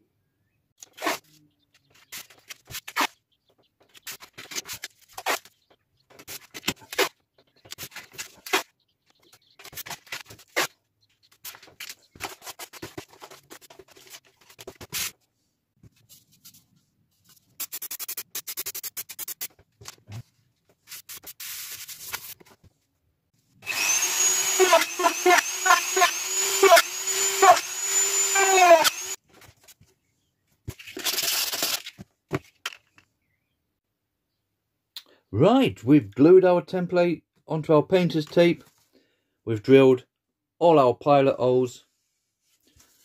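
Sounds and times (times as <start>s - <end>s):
tape rubbed with scratchy strokes: 0.8s - 1.4s, 11.4s - 15.3s, 17.2s - 19.6s, 20.8s - 22.4s, 30.7s - 32.0s
tape unwinding crackling: 30.8s - 32.0s.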